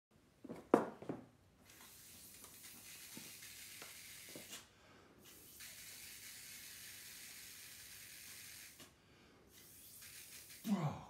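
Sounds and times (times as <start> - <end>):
hiss of air and ink spray: 1.7 - 10.7.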